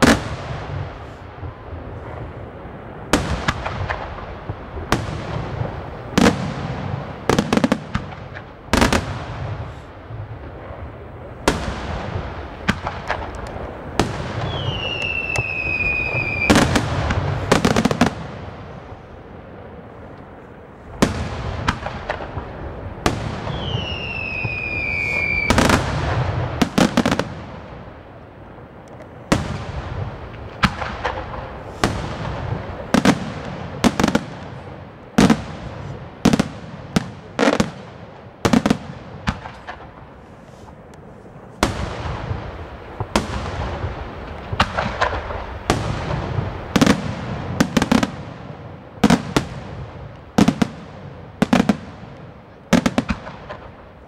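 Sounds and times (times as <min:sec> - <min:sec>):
fireworks bursting bangs: 0:00.0 - 0:54.0
steady hiss: 0:00.0 - 0:54.0
falling whistle: 0:14.5 - 0:16.6, 0:23.5 - 0:25.6.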